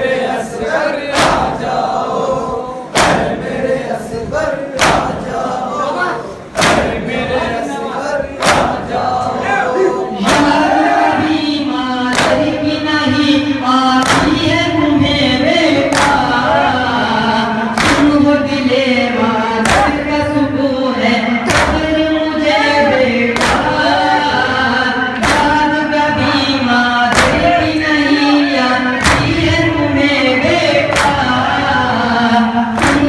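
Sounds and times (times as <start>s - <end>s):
men chanting in unison: 0.0s - 33.0s
chest beating claps: 1.1s - 1.8s, 2.9s - 3.5s, 4.8s - 5.3s, 6.5s - 7.1s, 8.4s - 9.1s, 10.2s - 10.8s, 12.1s - 12.6s, 14.0s - 14.6s, 15.8s - 16.5s, 17.7s - 18.3s, 19.6s - 20.2s, 21.4s - 22.1s, 23.3s - 24.5s, 25.2s - 26.4s, 27.0s - 27.9s, 28.9s - 33.0s.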